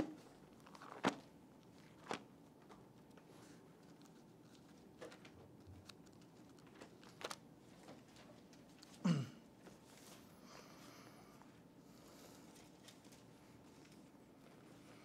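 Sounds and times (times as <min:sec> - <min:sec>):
pages turning: 0:00.4 - 0:08.9.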